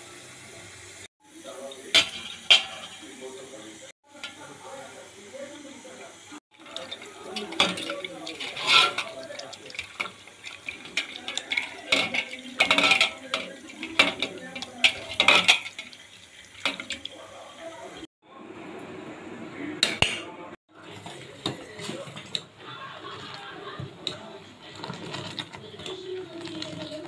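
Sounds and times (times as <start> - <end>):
water pouring and sloshing: 6.5 - 18.1, 20.7 - 27.0
tumbler clinking against steel pot: 6.6 - 16.0.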